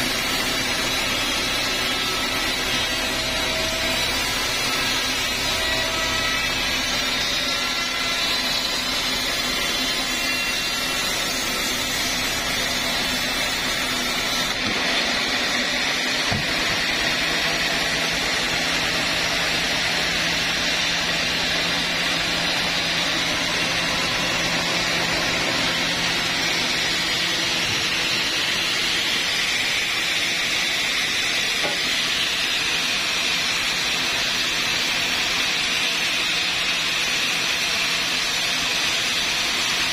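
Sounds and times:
band saw cutting through log: 0:00.0 - 0:39.9.

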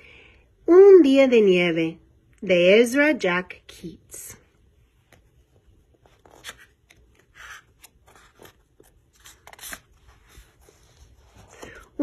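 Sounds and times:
hand rustling on book cover: 0:04.9 - 0:12.0
book cover bending open: 0:05.9 - 0:10.6.

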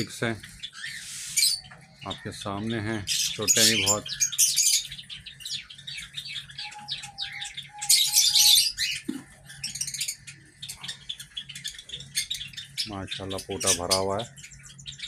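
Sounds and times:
cockatiels chirping: 0:00.0 - 0:15.0
raspy hissing bursts: 0:00.9 - 0:01.6.

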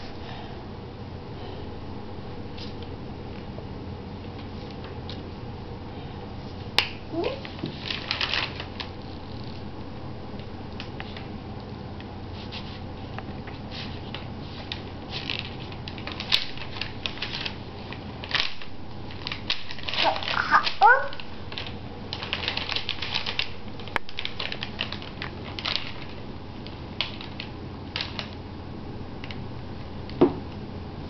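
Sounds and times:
steady low hum: 0:00.0 - 0:31.0
paper rustling: 0:07.4 - 0:09.4, 0:12.3 - 0:26.2.

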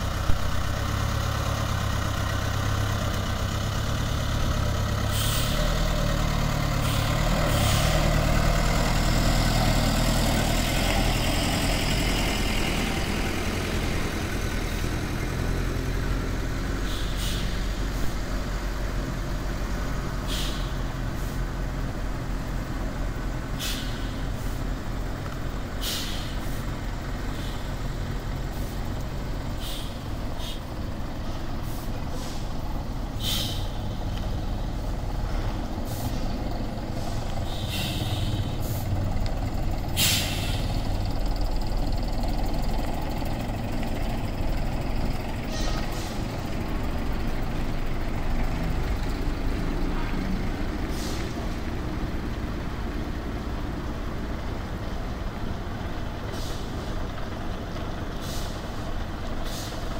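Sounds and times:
diesel bus engine running: 0:00.0 - 0:59.9
air brake hisses: 0:05.1 - 0:05.8, 0:16.7 - 0:18.2, 0:20.2 - 0:21.5, 0:23.5 - 0:24.6, 0:25.8 - 0:26.7, 0:27.3 - 0:27.8, 0:29.5 - 0:30.7, 0:31.6 - 0:32.6, 0:33.2 - 0:34.0, 0:35.8 - 0:38.9, 0:40.0 - 0:40.9, 0:45.5 - 0:46.3, 0:50.8 - 0:51.4, 0:56.3 - 0:57.0, 0:58.2 - 0:58.8, 0:59.4 - 0:59.9.

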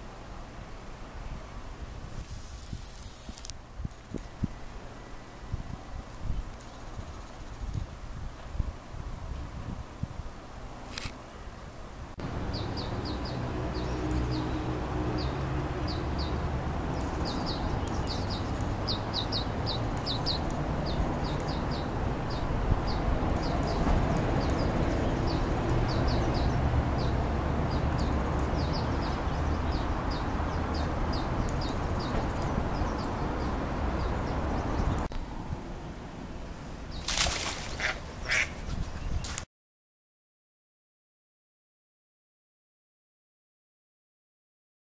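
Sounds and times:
small birds chirping: 0:12.2 - 0:35.1
flowing river water: 0:36.0 - 0:38.4.

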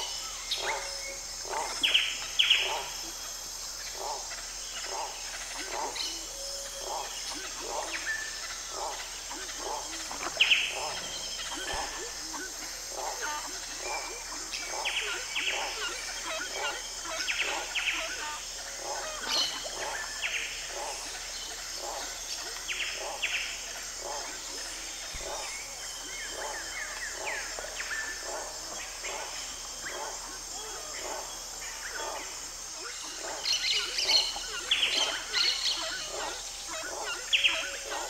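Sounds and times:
birds chirping: 0:00.0 - 0:38.0
high-pitched insect chorus: 0:00.0 - 0:38.0.

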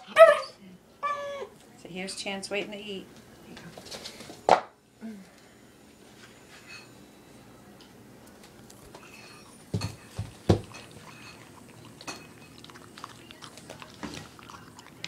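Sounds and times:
puppy crunching dry kibble: 0:08.3 - 0:15.0.

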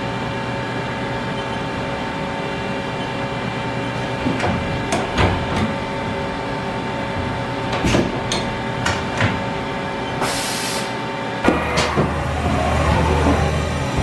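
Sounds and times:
machining center whine and hum: 0:00.0 - 0:14.0
brief high hiss: 0:10.2 - 0:10.9.

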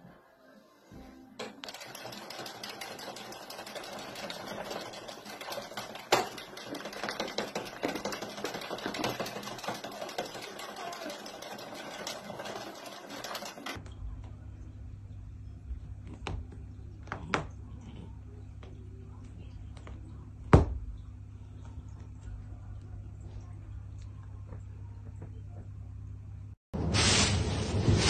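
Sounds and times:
knitting machine clattering: 0:01.4 - 0:13.8.

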